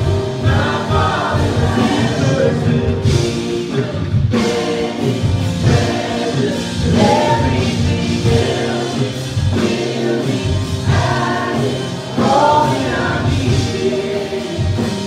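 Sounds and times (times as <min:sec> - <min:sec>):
choir singing worship song: 0:00.0 - 0:15.0.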